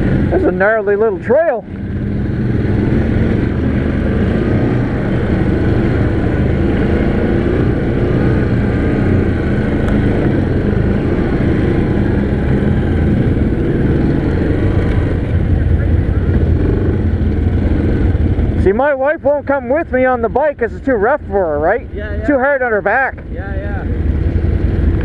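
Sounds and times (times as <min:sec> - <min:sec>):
atv engine running: 0:00.0 - 0:25.0.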